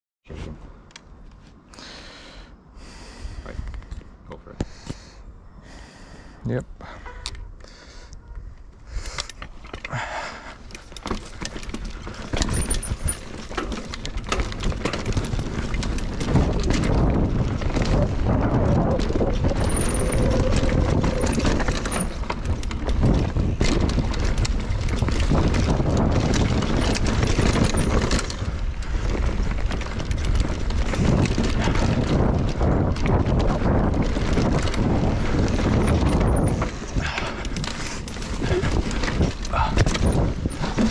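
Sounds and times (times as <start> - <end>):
bike rattling and knocking: 8.9 - 40.9
tyres rumbling on dirt: 9.5 - 40.9
wind rushing over microphone: 11.3 - 40.9.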